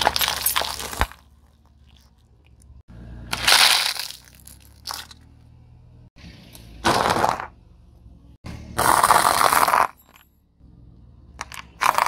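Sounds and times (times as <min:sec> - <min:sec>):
tyre crushing plastic cups: 0:00.0 - 0:01.4, 0:03.3 - 0:05.2, 0:06.8 - 0:07.6, 0:11.4 - 0:12.0
low engine hum: 0:01.6 - 0:03.4, 0:04.5 - 0:06.8, 0:10.2 - 0:11.8.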